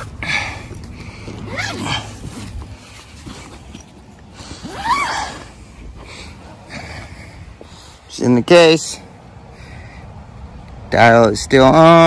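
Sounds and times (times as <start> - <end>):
zipper pulled open: 1.2 - 6.7.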